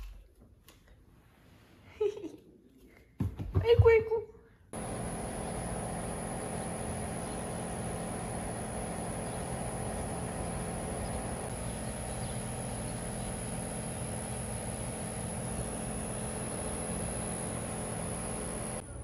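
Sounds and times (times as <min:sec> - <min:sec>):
low steady hum: 0:04.7 - 0:19.0
high-pitched insect drone: 0:04.8 - 0:18.8.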